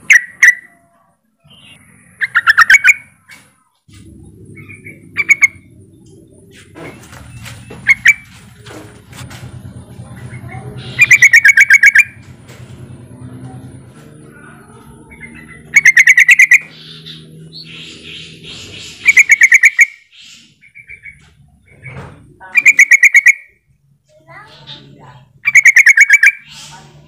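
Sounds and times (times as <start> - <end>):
bird chattering: 0.0 - 3.4, 4.5 - 6.8, 7.4 - 8.7, 10.0 - 12.2, 14.4 - 23.6, 24.2 - 27.0
faint bird chirps: 0.0 - 3.4, 10.2 - 12.2
low hum: 0.0 - 19.2.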